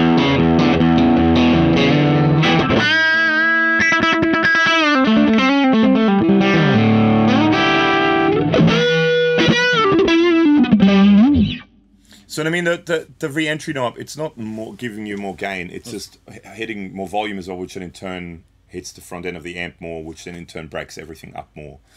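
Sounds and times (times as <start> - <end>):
overdriven electric guitar: 0.0 - 11.9.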